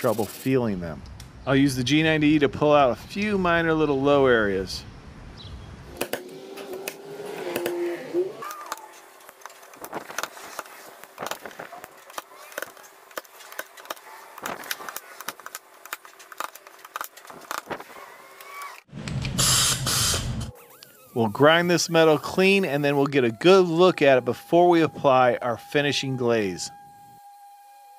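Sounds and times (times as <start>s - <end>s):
stud welder snaps and clacks: 8.7s - 19.2s.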